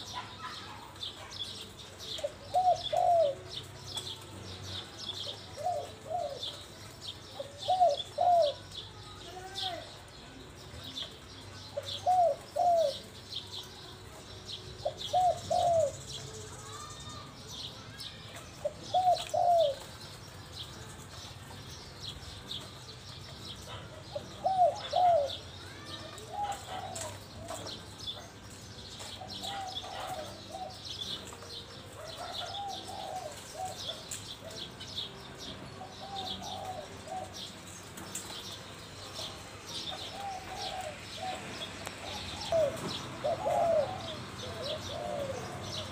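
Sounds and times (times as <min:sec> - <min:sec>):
dove cooing: 0:00.0 - 0:08.8, 0:11.7 - 0:13.2, 0:14.8 - 0:17.2, 0:18.6 - 0:20.2, 0:23.4 - 0:35.1, 0:35.7 - 0:37.6, 0:39.0 - 0:45.9
small birds chirping: 0:00.0 - 0:45.9.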